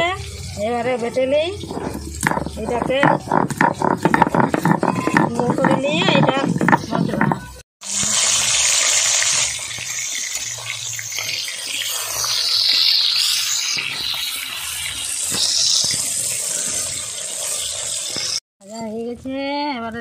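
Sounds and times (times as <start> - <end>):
fish sizzling in hot oil: 0.0 - 2.6, 7.8 - 18.4.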